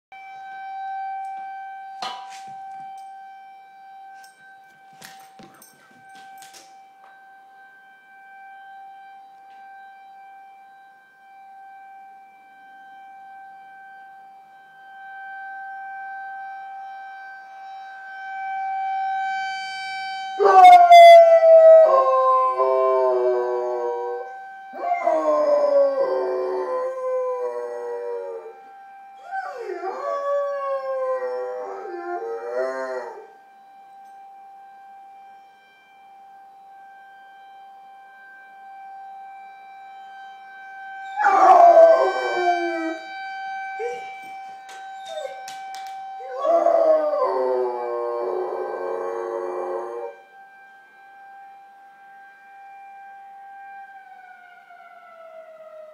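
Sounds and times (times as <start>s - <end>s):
emergency siren steady tone: 0.0s - 55.9s
dog howling: 41.1s - 43.0s, 43.8s - 44.2s, 44.8s - 50.2s.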